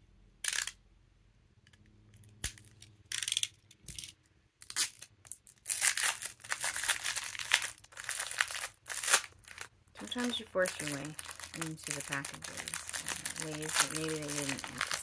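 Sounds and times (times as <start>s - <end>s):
plastic wrapping crinkling: 4.7s - 15.0s.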